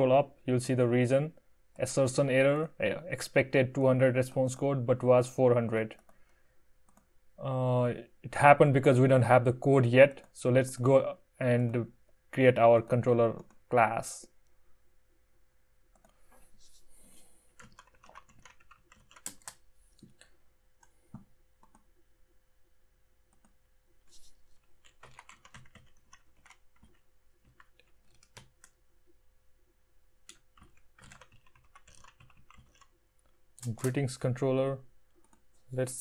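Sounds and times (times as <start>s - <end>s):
faint keyboard typing: 5.9s - 7.1s, 13.3s - 13.7s, 15.9s - 16.8s, 17.5s - 22.0s, 23.3s - 29.2s, 30.2s - 34.4s, 35.1s - 35.7s.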